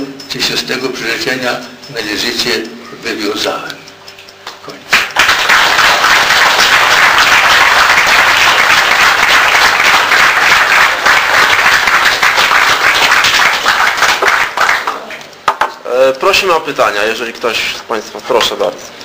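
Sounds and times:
audience applauding: 4.9s - 15.6s.

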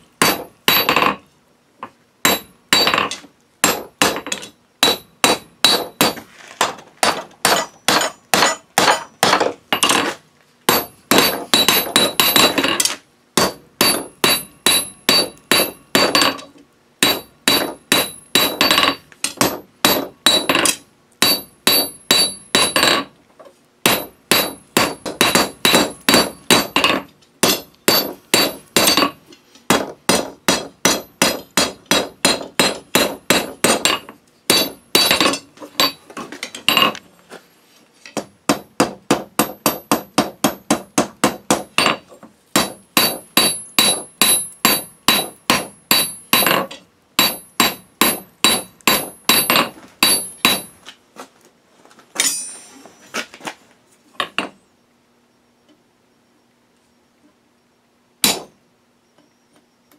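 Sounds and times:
hammer striking steel on anvil: 0.2s - 1.2s, 2.2s - 10.1s, 10.7s - 23.1s, 23.9s - 36.0s, 38.1s - 42.0s, 42.6s - 50.8s, 52.2s - 52.7s, 58.2s - 58.5s.

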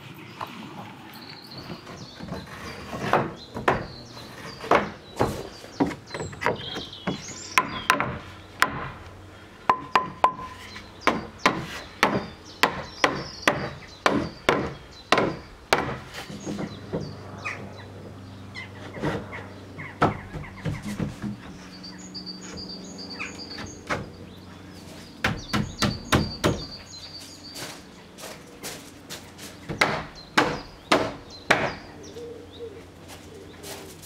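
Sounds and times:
wooden knocks of log planks: 1.8s - 4.0s, 4.6s - 9.0s, 9.7s - 17.2s, 18.9s - 21.6s, 29.7s - 31.8s.

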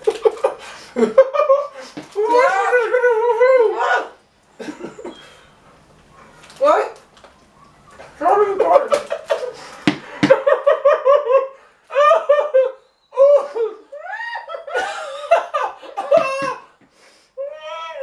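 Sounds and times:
man and woman laughing: 0.0s - 3.8s, 8.4s - 16.7s.

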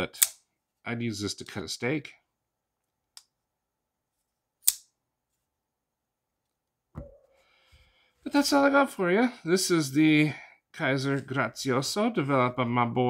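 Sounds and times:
folding knife click: 0.2s - 0.4s, 4.6s - 4.9s
soft low thump: 7.0s - 7.3s.

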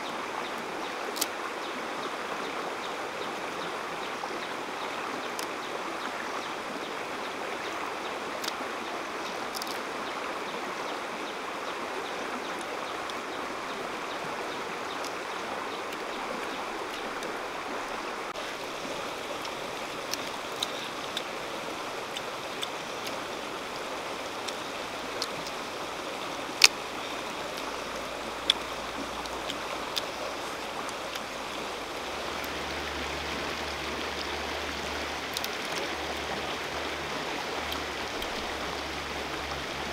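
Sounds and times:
river flowing over stones: 0.0s - 39.9s
sharp small clicks: 9.5s - 9.8s.

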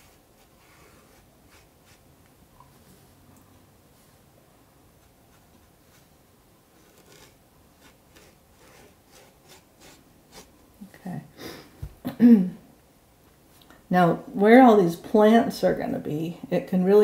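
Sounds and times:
paintbrush scratching on paper: 0.0s - 2.1s, 4.9s - 10.5s.

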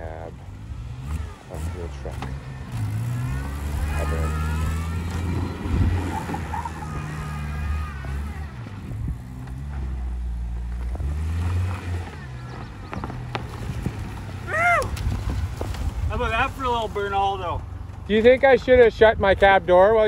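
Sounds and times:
car engine at high revs: 0.0s - 14.5s
wheels spinning in loose dirt: 0.0s - 20.0s.

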